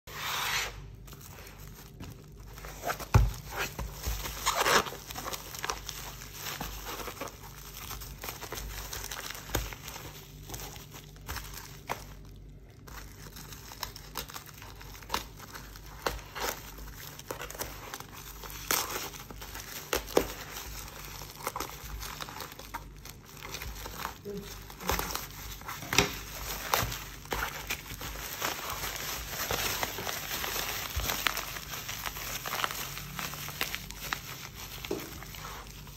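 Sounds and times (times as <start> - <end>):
plastic wrapping crinkling: 0.2 - 35.9.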